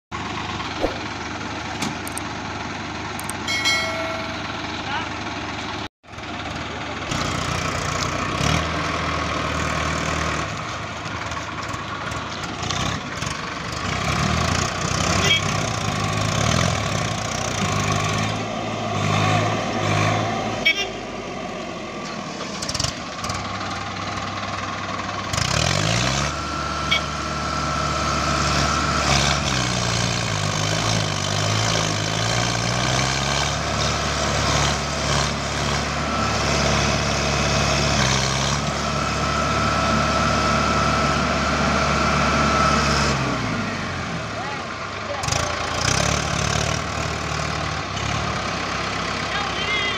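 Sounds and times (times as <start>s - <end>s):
tractor diesel engine labouring: 0.1s - 49.9s.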